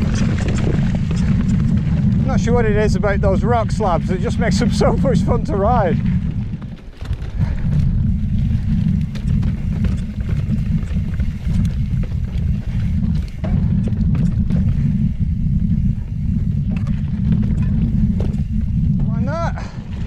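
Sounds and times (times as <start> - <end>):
bike clattering over rock: 0.0 - 15.1
wind rumble on microphone: 0.0 - 20.0.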